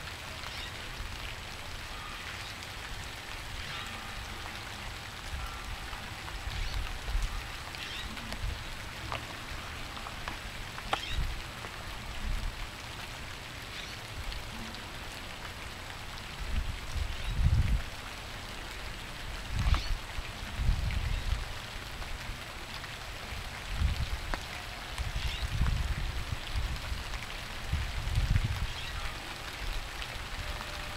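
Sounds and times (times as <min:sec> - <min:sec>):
steady rain: 0:00.0 - 0:30.9
bird calls: 0:10.9 - 0:11.2.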